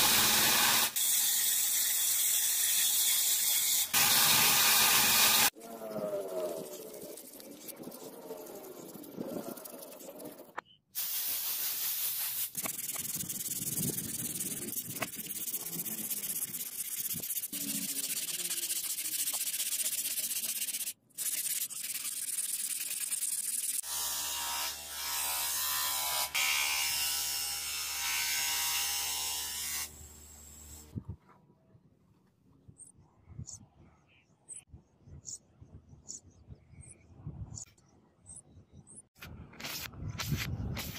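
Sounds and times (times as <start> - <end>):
sandpaper rubbing on steel: 6.2 - 23.9.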